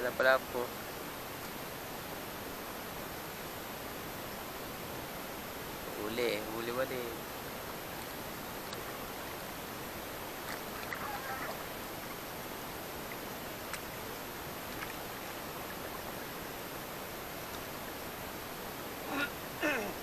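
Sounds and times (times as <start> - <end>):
water and wind hissing: 0.0 - 20.0
faint clicks: 13.1 - 13.9.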